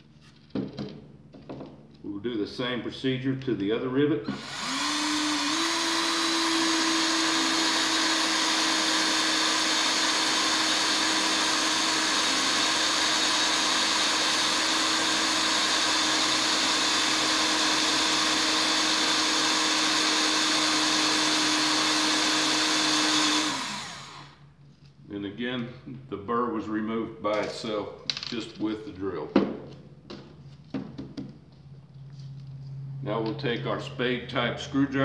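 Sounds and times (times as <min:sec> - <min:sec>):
cordless drill drilling: 0:04.3 - 0:24.4.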